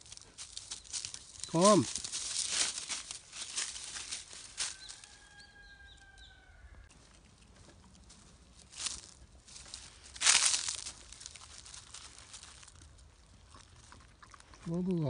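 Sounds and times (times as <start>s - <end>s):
dry leaves rustling: 0.0s - 6.2s, 6.9s - 13.7s
chirps: 4.7s - 6.8s.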